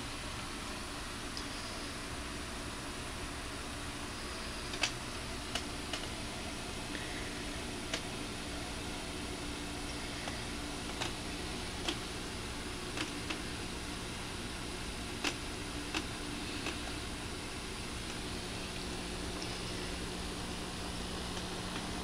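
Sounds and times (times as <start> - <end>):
aquarium air pump humming: 0.0 - 22.0
faint clicks: 4.6 - 6.1.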